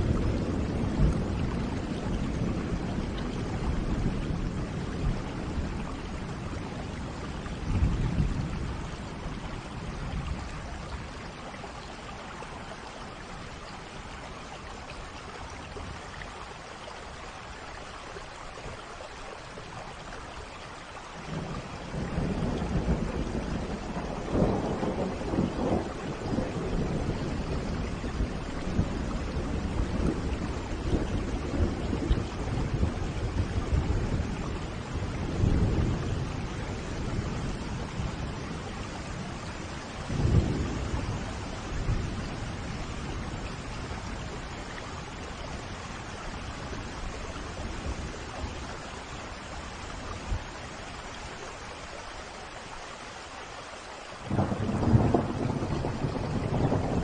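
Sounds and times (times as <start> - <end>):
rolling thunder: 0.0 - 11.0, 21.3 - 48.7, 54.3 - 57.0
rain falling: 0.0 - 57.0.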